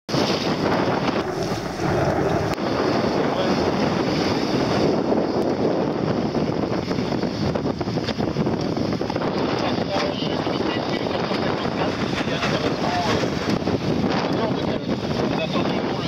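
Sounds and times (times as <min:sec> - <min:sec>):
choppy sea water: 0:00.1 - 0:16.0
wind buffeting microphone: 0:00.1 - 0:16.0.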